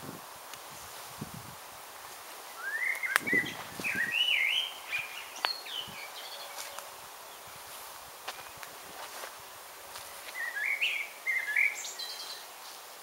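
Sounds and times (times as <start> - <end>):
songbird warbling: 2.6 - 7.6, 10.1 - 12.4.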